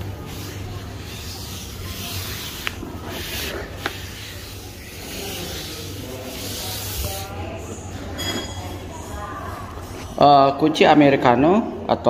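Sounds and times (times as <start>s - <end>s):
hands rustling on table: 0.2s - 7.3s.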